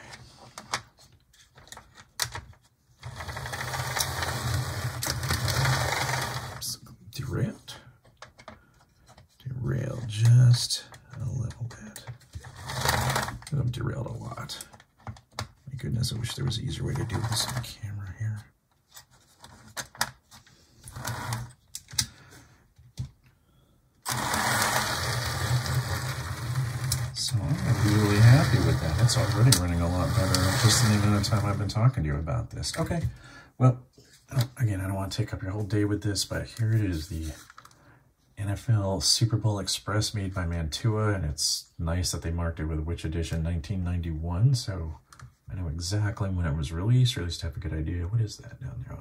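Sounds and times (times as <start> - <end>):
model train motor whirring: 3.1 - 6.7, 12.5 - 13.4, 24.0 - 31.6
clicks and taps of handling: 8.0 - 9.4, 14.6 - 15.7.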